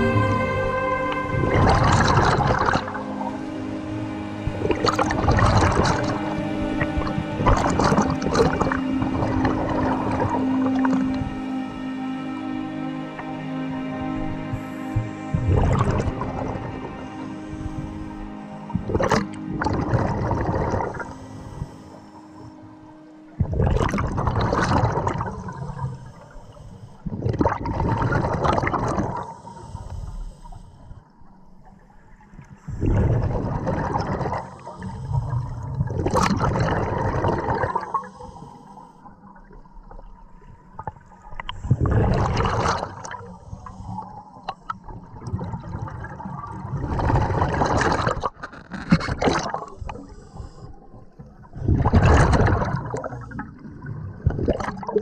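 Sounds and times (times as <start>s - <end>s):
scuba exhaust bubbling underwater: 0.0s - 3.4s, 4.4s - 11.4s, 14.5s - 16.7s, 17.6s - 21.8s, 23.4s - 26.2s, 27.0s - 29.3s, 32.7s - 38.1s, 40.8s - 43.8s, 44.4s - 50.4s, 51.1s - 55.0s.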